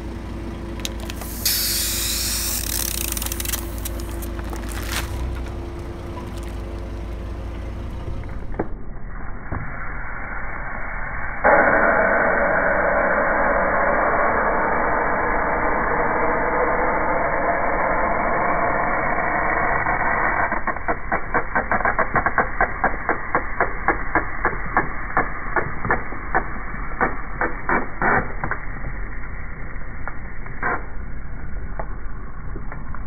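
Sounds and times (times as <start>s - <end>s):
liquid hissing from bottle: 1.2s - 4.2s
plastic bottles crunching: 2.6s - 6.8s.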